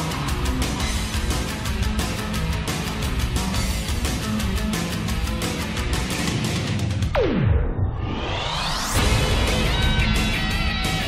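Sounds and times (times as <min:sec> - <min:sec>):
electronic dance music: 0:00.0 - 0:05.6
fast drum beat: 0:00.0 - 0:06.8.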